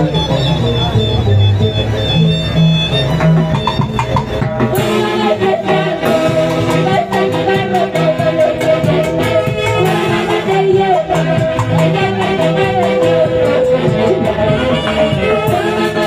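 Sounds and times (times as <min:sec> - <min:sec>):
live band with saxophones: 0:00.0 - 0:16.0.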